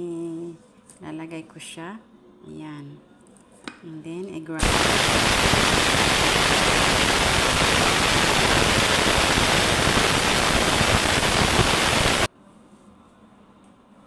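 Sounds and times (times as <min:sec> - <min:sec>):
electric grinder running: 0:04.6 - 0:12.3.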